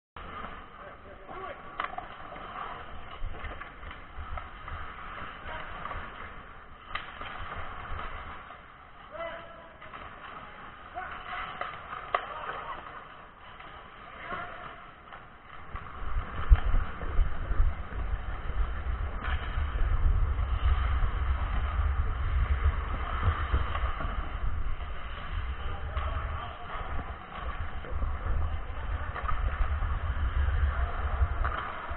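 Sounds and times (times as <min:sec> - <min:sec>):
skate blades scraping ice: 0:00.2 - 0:31.9
sharp clack of stick or puck: 0:01.7 - 0:02.4, 0:05.5 - 0:08.4, 0:31.4 - 0:31.8
low rumbling: 0:13.8 - 0:31.9
wind noise on microphone: 0:15.7 - 0:31.9.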